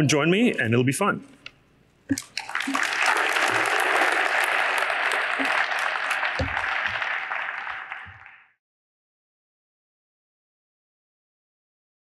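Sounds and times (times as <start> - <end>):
audience applauding: 2.2 - 8.6.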